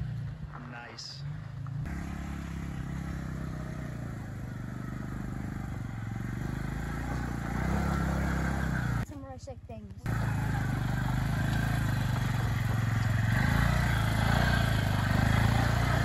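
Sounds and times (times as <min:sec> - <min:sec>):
truck engine running: 0:01.2 - 0:09.1, 0:10.0 - 0:16.0.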